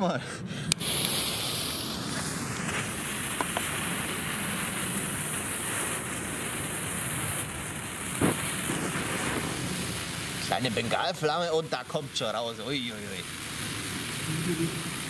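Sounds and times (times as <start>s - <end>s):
firework fountain hissing: 0.7s - 15.0s
sharp pop: 2.6s - 3.8s, 8.2s - 9.6s.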